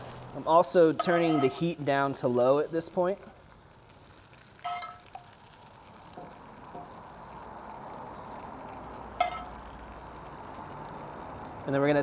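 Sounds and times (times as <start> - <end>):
food sizzling in a pan: 0.0 - 12.0
metal spoon clinking on pan: 1.0 - 1.6, 4.6 - 5.3, 9.2 - 9.6.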